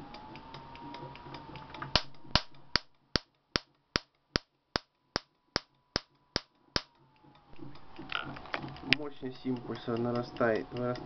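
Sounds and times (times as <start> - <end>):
high-voltage sparks snapping: 1.9 - 6.9.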